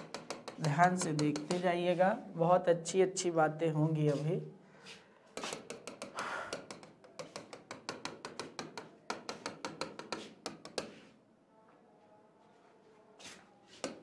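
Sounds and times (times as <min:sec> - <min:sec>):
stylus tapping on touchscreen: 0:00.0 - 0:01.8, 0:05.4 - 0:11.1, 0:13.8 - 0:14.0.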